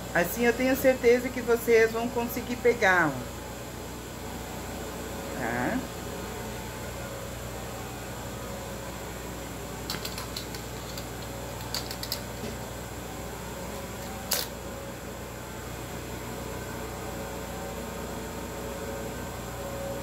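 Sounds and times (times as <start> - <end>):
small clicks: 9.9 - 12.3.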